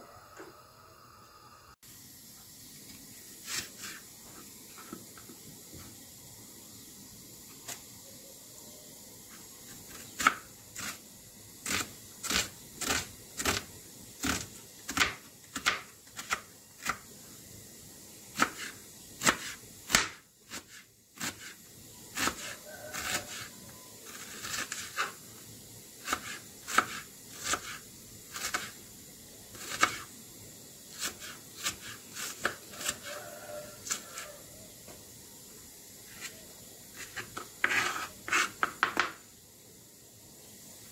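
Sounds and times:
knife scraping board: 0:03.4 - 0:05.0, 0:18.4 - 0:21.6, 0:22.2 - 0:23.5, 0:24.1 - 0:25.2, 0:26.0 - 0:28.8, 0:29.5 - 0:30.1, 0:30.9 - 0:33.2, 0:33.8 - 0:34.4, 0:36.1 - 0:39.1
knife chopping on cutting board: 0:14.2 - 0:17.0, 0:26.0 - 0:28.7, 0:29.6 - 0:30.0, 0:37.0 - 0:39.2.

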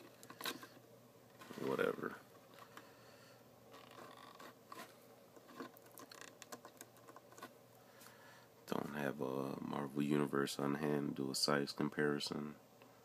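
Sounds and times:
plastic figure clicks and rubbing: 0:03.8 - 0:07.5.

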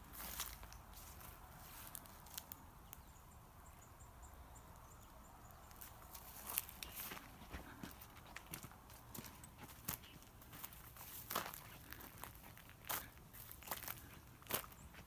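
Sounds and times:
footsteps on leaves and dirt: 0:00.0 - 0:02.6, 0:05.7 - 0:15.0.

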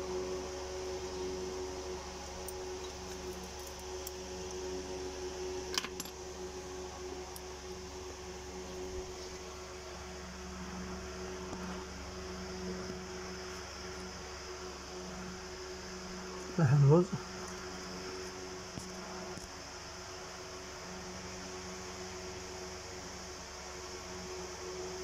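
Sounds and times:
steady mechanical hum: 0:00.0 - 0:25.0.

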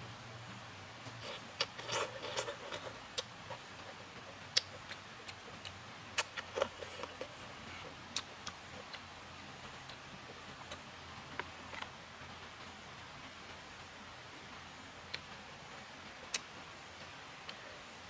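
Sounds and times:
person slurping food: 0:01.2 - 0:03.0.

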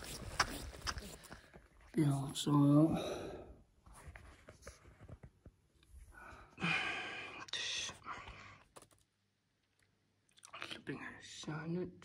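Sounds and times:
man whispering: 0:07.3 - 0:08.6, 0:10.5 - 0:12.0.

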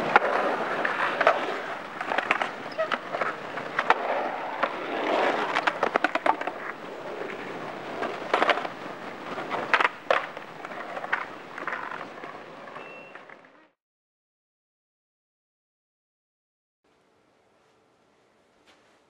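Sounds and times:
thin high tone: 0:12.8 - 0:13.4.

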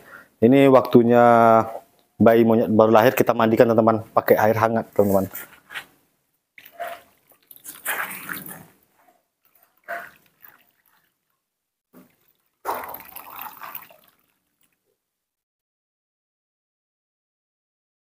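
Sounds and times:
water pouring into a plastic basin: 0:06.6 - 0:08.8, 0:09.4 - 0:11.3, 0:12.0 - 0:14.9.

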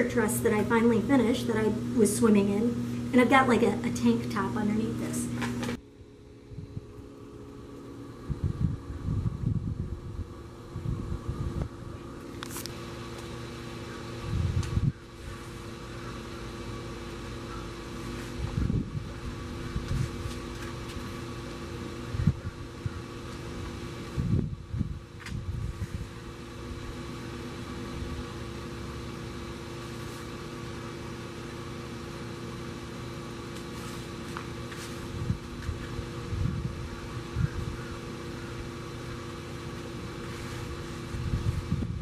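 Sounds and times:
machine hum: 0:00.0 - 0:42.0
wind buffeting microphone: 0:08.1 - 0:11.9, 0:14.2 - 0:15.1, 0:18.4 - 0:20.4, 0:22.0 - 0:23.1, 0:24.1 - 0:26.1, 0:35.2 - 0:37.9, 0:41.1 - 0:42.0.

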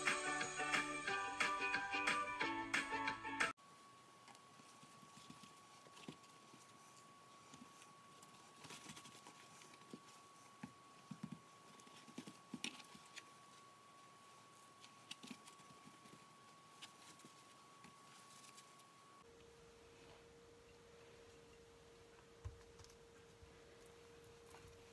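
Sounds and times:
faint steady tone: 0:03.6 - 0:24.9.

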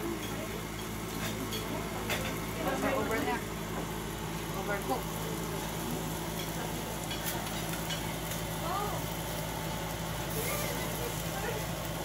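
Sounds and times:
meat skewers sizzling: 0:00.0 - 0:12.0
skewers clicking on grill: 0:05.5 - 0:12.0.

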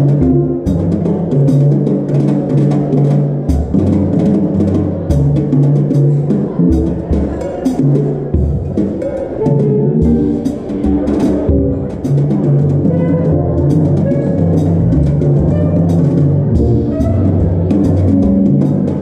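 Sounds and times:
electric bass notes: 0:00.0 - 0:01.3, 0:09.4 - 0:19.0
jazz combo playing: 0:00.0 - 0:19.0.

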